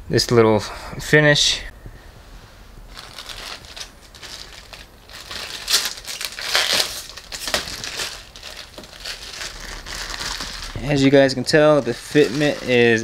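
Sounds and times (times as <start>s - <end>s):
plastic wrap crinkling: 2.9s - 13.0s.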